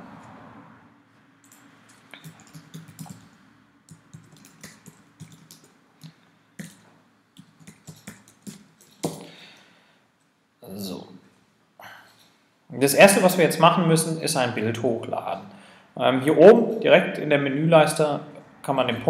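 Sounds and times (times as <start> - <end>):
computer keyboard typing: 1.4 - 6.8, 7.4 - 9.2.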